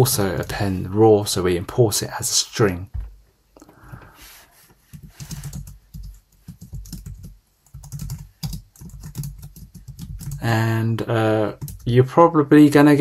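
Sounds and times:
computer keyboard typing: 5.0s - 10.4s, 11.5s - 11.9s.

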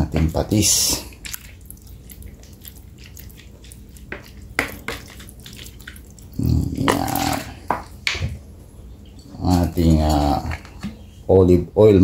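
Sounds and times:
liquid dripping and splashing: 0.0s - 8.3s.

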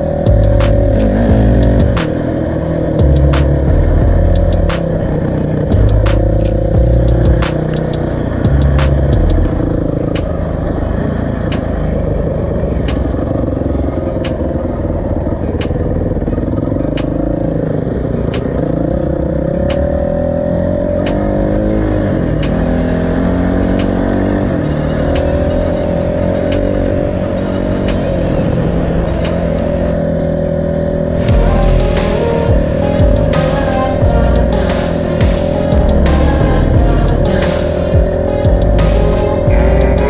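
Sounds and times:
sharp ticking: 0.0s - 10.6s
motorcycle engine revving: 0.0s - 40.0s.

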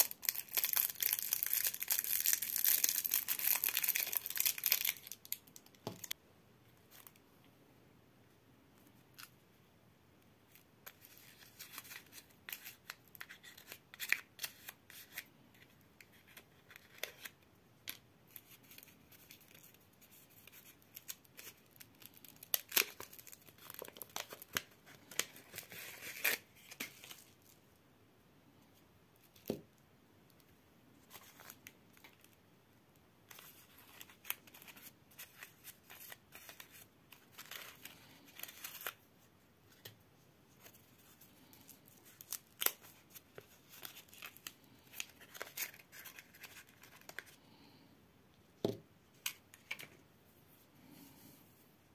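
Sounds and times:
candy wrapper crinkling and tearing: 0.0s - 6.2s, 10.5s - 27.6s, 33.3s - 39.1s, 40.6s - 47.4s.

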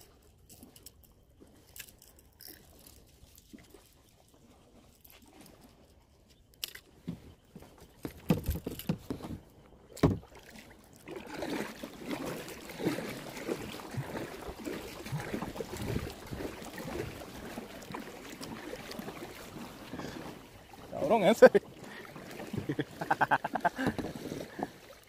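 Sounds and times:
paddle splashing in water: 6.9s - 25.0s
thumps on plastic kayak: 7.0s - 9.4s, 10.0s - 10.3s.

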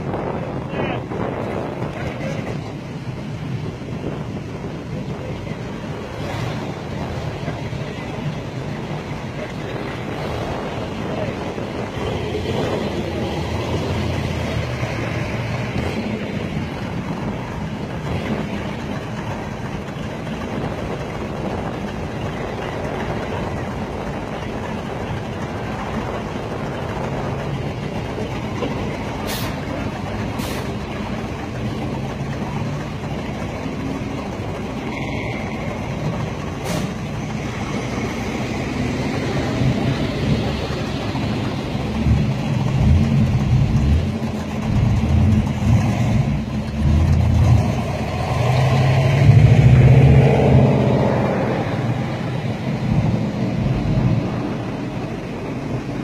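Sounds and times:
car engines rumbling: 0.0s - 56.0s.

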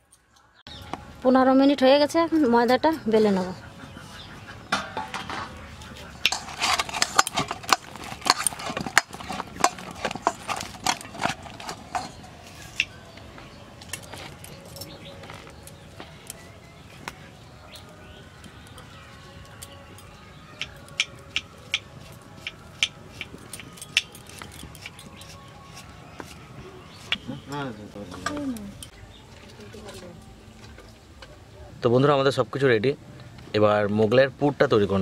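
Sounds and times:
steel bowl and plate clinking: 6.2s - 12.9s.

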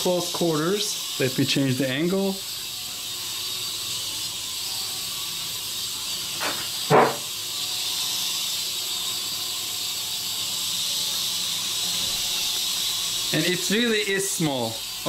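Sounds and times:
toy helicopter rotors whirring: 0.0s - 15.0s.

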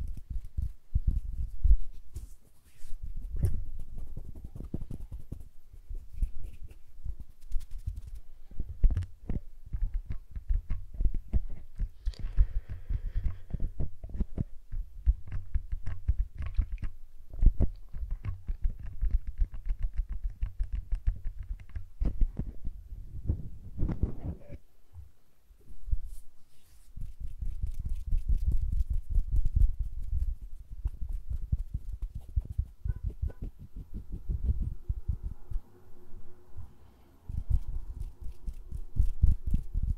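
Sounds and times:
fingers brushing microphone: 0.0s - 24.6s, 25.9s - 35.6s, 37.3s - 39.9s
fingers tapping microphone: 3.2s - 24.6s.

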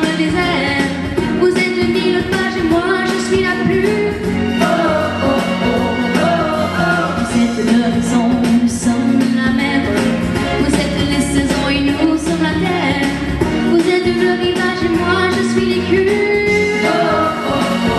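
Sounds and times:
woman singing into a microphone: 0.0s - 4.2s, 7.3s - 17.2s
musical accompaniment: 0.0s - 17.9s.

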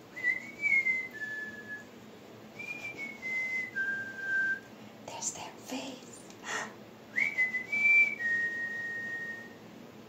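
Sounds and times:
person whistling: 0.2s - 1.9s, 2.6s - 4.7s, 7.2s - 9.6s.

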